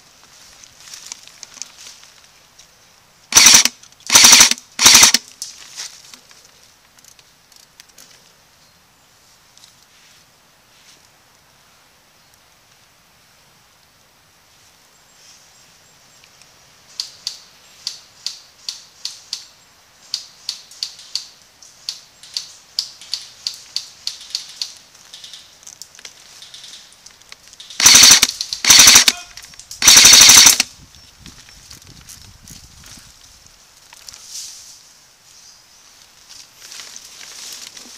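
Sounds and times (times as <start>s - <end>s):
airsoft gun single shots: 3.3s - 5.2s, 27.8s - 29.2s, 29.8s - 30.7s
full-auto airsoft bursts: 3.3s - 5.2s, 27.8s - 30.7s.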